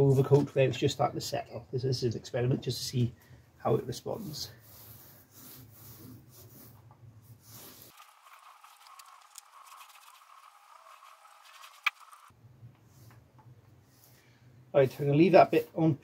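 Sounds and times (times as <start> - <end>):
paint roller crackle and hiss: 7.4 - 12.3.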